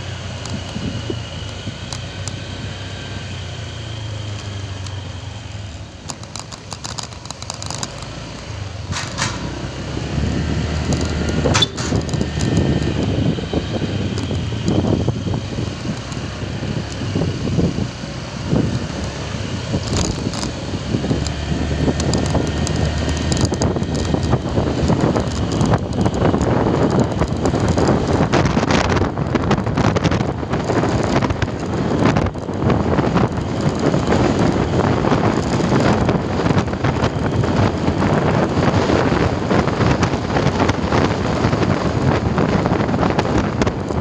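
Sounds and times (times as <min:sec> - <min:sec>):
motorcycle engine running: 0:00.0 - 0:44.0
wind rumbling on microphone: 0:00.0 - 0:44.0
sharp clicks: 0:00.3 - 0:02.4, 0:04.2 - 0:09.6, 0:10.7 - 0:13.3, 0:14.0 - 0:17.1, 0:18.6 - 0:37.8.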